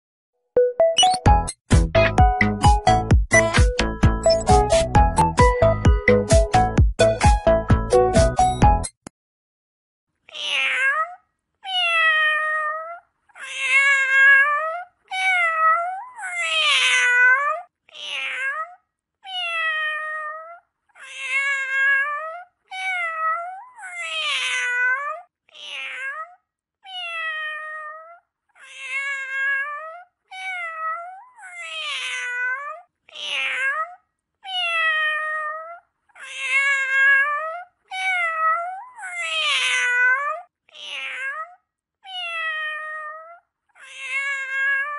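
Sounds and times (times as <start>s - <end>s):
cat meowing: 10.3s - 44.9s.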